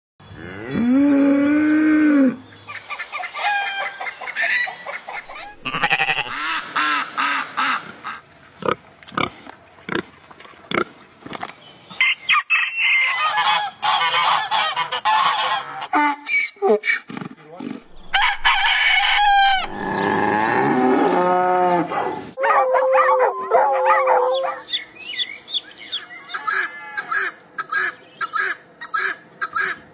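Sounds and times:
donkey braying: 0.7s - 6.6s, 17.8s - 24.6s
honking animal calls: 3.2s - 7.8s, 17.9s - 21.9s
pig grunting: 5.3s - 6.4s, 19.1s - 22.2s.

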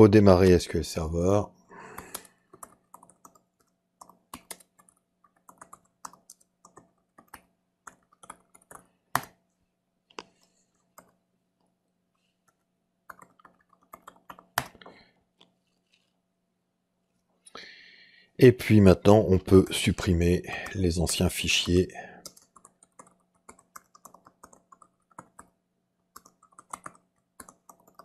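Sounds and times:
typing on computer keyboard: 2.0s - 9.4s, 12.4s - 14.9s, 22.2s - 28.0s.

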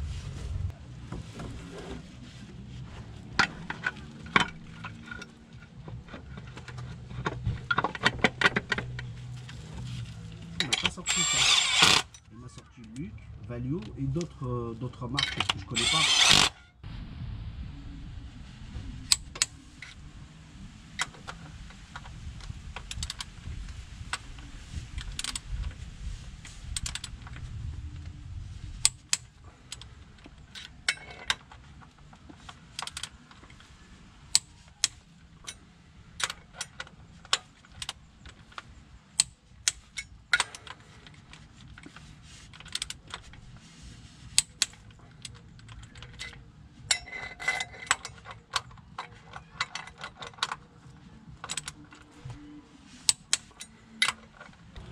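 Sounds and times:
ratchet wrench clicking: 10.8s - 12.2s, 15.7s - 16.6s.

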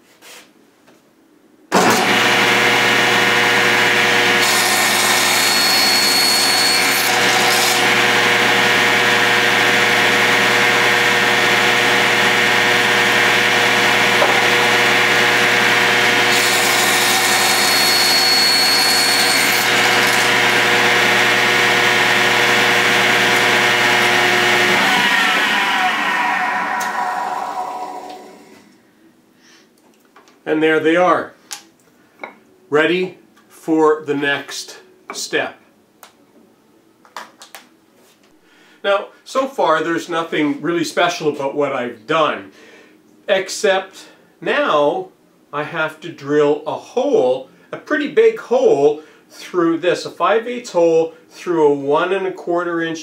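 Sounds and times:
saw blade spinning down: 1.7s - 28.6s
saw cutting wooden dowel: 1.8s - 26.1s
table saw motor whine: 1.8s - 28.6s.

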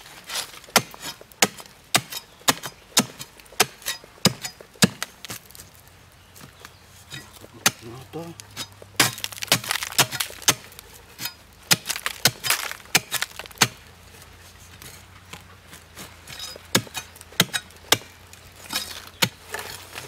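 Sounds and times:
digging tool chopping into earth: 0.4s - 5.6s, 7.1s - 13.9s, 16.0s - 20.0s.

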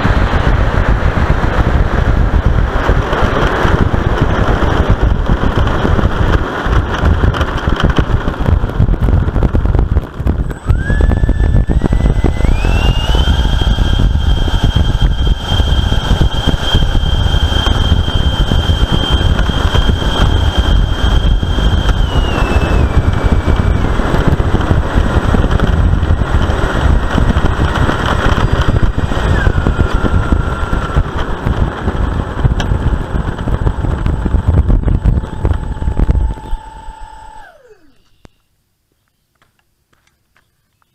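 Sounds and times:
electric ducted fans whining: 0.0s - 38.6s.

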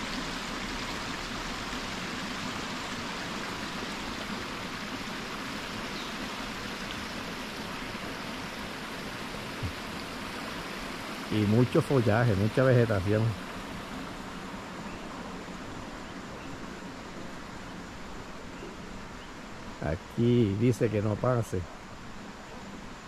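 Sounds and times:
creek water flowing over concrete: 0.0s - 23.0s.

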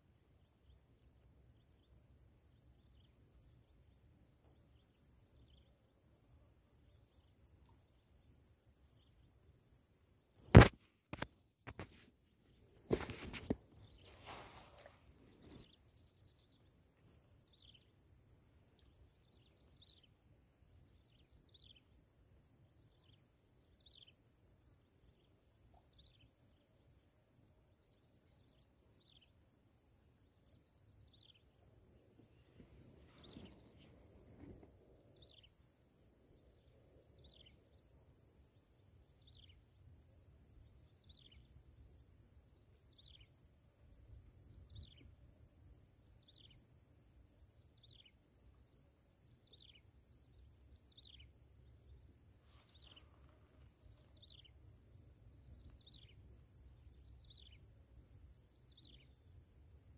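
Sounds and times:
rustle of movement: 10.6s - 15.9s, 32.2s - 34.8s, 52.3s - 54.2s
bird chirping: 38.7s - 39.7s, 40.6s - 41.6s, 42.5s - 43.3s, 44.1s - 45.1s, 45.8s - 46.6s, 47.4s - 48.2s, 49.1s - 59.3s.

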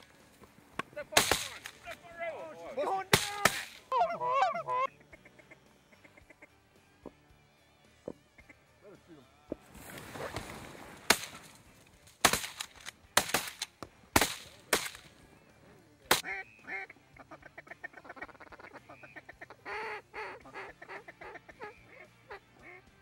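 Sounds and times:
shotgun shots: 1.2s - 1.8s, 11.1s - 11.5s, 12.2s - 15.1s
ducks quacking: 2.8s - 6.6s, 8.1s - 8.7s, 15.3s - 22.9s.

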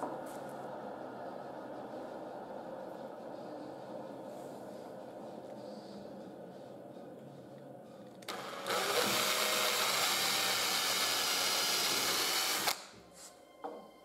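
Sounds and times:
cordless drill drilling wood: 8.3s - 12.8s.

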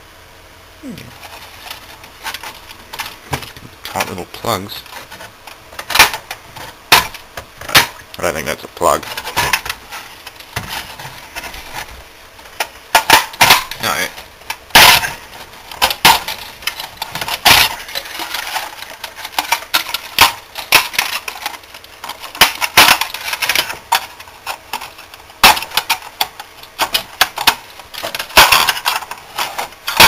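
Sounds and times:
clicks and clinks of parts: 12.5s - 30.0s.

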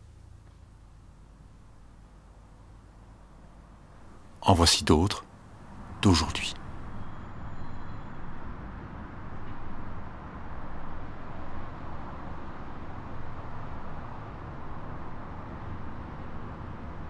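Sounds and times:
outdoor background rumble: 0.0s - 17.0s.

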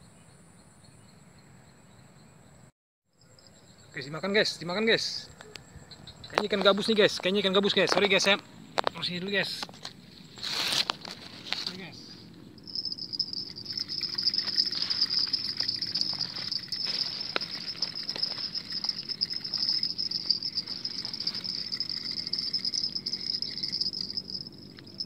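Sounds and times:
insects chirring: 0.1s - 25.0s
rustling close to microphone: 12.7s - 24.4s.

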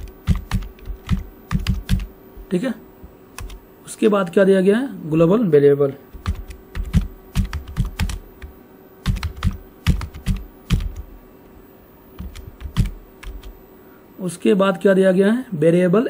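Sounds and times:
keyboard typing: 0.0s - 2.6s, 3.3s - 3.6s, 6.1s - 11.2s, 12.2s - 13.6s.

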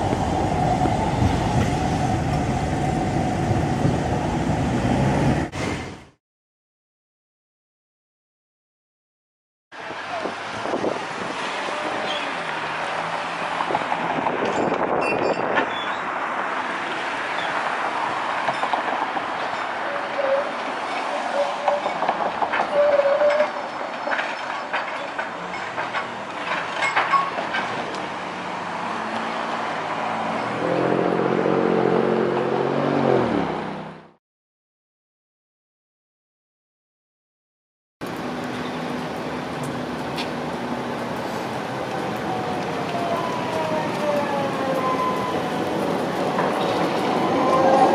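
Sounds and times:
light-rail trolley running: 0.0s - 5.8s, 17.3s - 28.4s, 38.0s - 47.9s
city traffic: 0.0s - 6.1s, 9.7s - 34.2s, 38.0s - 47.9s
road vehicle engine hum: 9.8s - 22.6s, 25.0s - 34.2s, 38.0s - 47.8s
wheel squeals on curved track: 14.5s - 16.1s, 19.4s - 25.1s, 44.6s - 45.6s, 46.6s - 47.9s.

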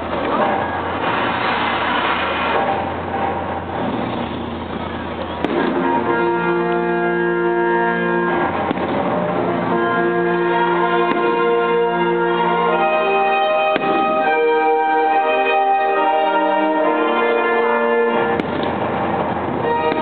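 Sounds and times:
firework bangs: 0.0s - 7.4s, 8.1s - 20.0s
patriotic music over loudspeakers: 5.4s - 20.0s.

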